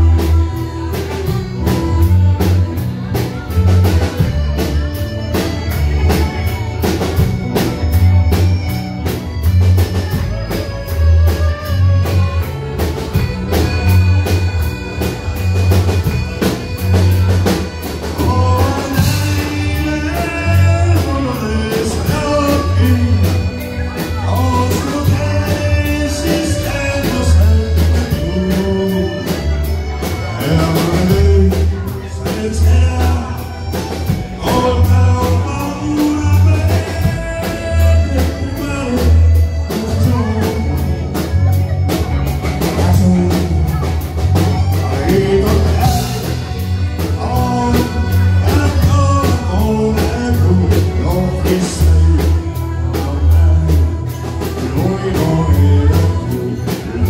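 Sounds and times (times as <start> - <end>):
accordion: 0.0 - 57.0
drum kit: 0.0 - 57.0
electric bass guitar: 0.0 - 57.0
electric guitar: 0.0 - 57.0
man singing: 15.8 - 57.0.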